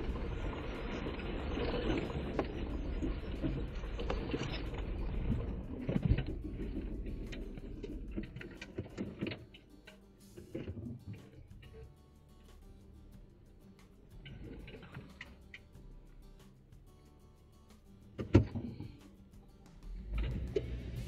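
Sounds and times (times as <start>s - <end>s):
engine and tyre rumble: 0.0s - 9.7s, 18.1s - 21.0s.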